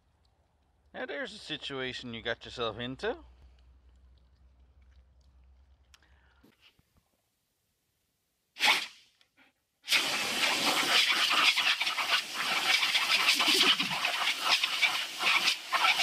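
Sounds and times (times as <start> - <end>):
hissing jet from nozzle wand: 8.6 - 9.0, 9.8 - 16.0.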